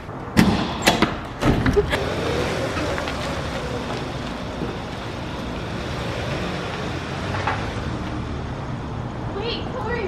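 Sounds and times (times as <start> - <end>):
car driving past: 1.8 - 9.3.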